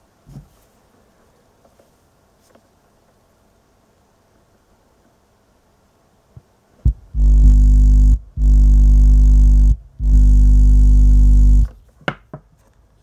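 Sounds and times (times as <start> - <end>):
subwoofer low mains hum: 6.3 - 11.9.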